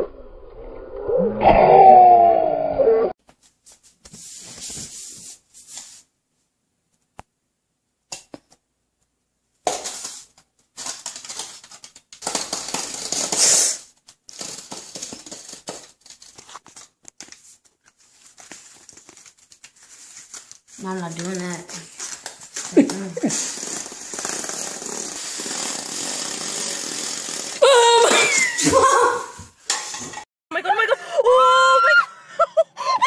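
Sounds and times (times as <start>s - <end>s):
plastic cup and paper rustling: 9.7s - 26.9s.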